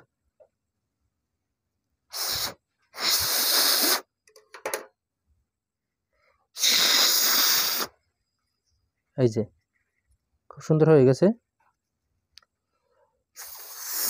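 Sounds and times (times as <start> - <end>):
breath blown out hard: 2.1 - 4.1, 6.6 - 8.0, 13.4 - 14.0.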